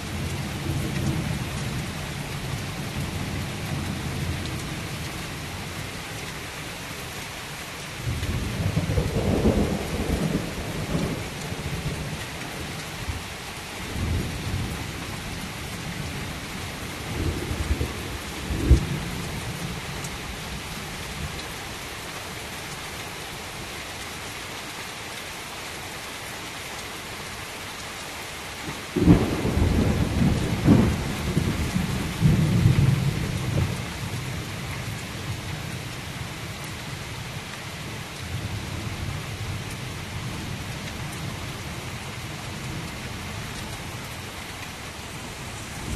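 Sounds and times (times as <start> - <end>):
heavy rain falling: 0.0 - 45.9
thunder rumbling: 8.0 - 12.0, 29.0 - 33.8, 44.9 - 45.9.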